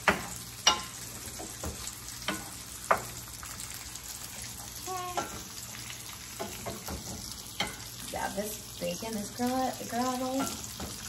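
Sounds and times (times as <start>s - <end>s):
wooden spoon knocking on pan: 0.0s - 3.2s
eggs and bacon sizzling: 0.0s - 11.0s.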